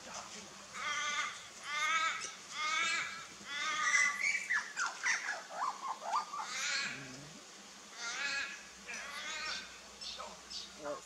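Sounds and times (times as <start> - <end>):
crow-like caw: 0.8 - 4.2, 7.9 - 9.7
bird squawks and warbling: 0.8 - 11.0.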